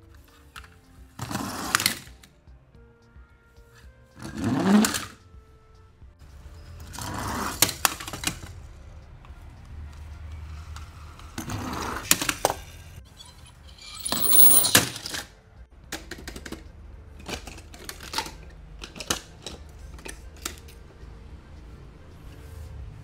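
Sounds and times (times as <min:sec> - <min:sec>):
toy cars clicking and clinking: 0:06.8 - 0:08.8, 0:10.4 - 0:20.8.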